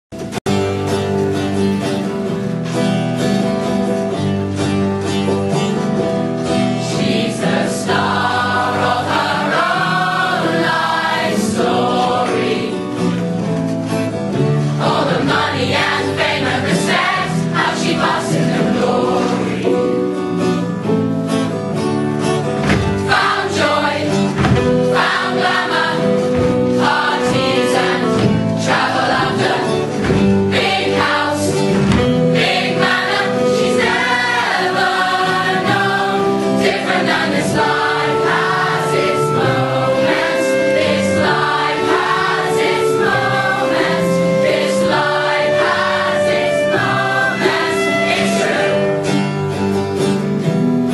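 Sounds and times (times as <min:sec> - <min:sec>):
mixed chorus singing: 0:06.5 - 0:13.2, 0:14.4 - 0:20.3, 0:22.7 - 0:49.6.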